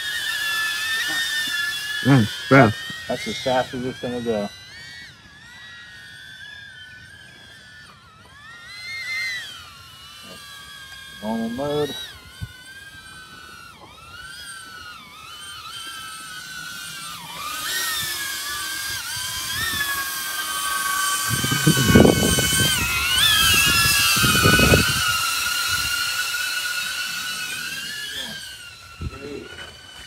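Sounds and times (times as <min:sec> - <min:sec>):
drone propellers whining: 0:00.0 - 0:30.0
wind rumbling on microphone: 0:21.2 - 0:26.0.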